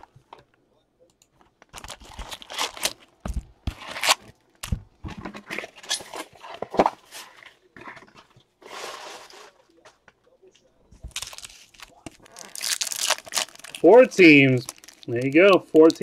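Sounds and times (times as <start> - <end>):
card packs crinkling and rustling: 1.5 - 4.4, 11.0 - 16.0.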